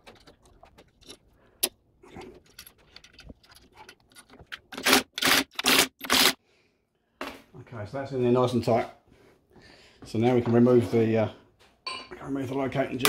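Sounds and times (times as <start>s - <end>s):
metal washers clicking and scraping: 0.0s - 6.2s.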